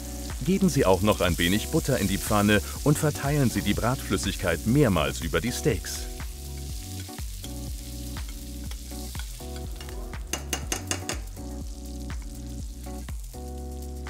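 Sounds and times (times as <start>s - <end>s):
soft background music: 0.0s - 14.0s
steaks sizzling in a pan: 0.0s - 14.0s
utensils against a pan: 6.4s - 11.4s.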